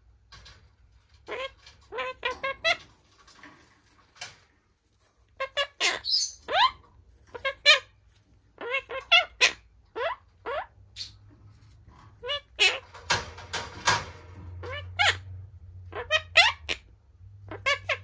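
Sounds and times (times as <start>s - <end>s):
parakeet chirps and squawks: 1.1s - 2.9s, 5.3s - 11.4s, 12.0s - 13.2s, 13.8s - 18.0s.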